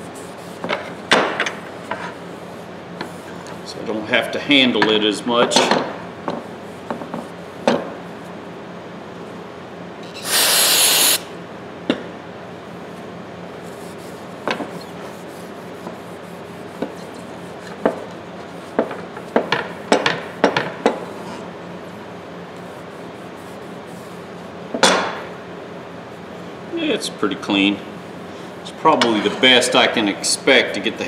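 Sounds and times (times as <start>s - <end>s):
spray hiss: 10.2s - 11.3s.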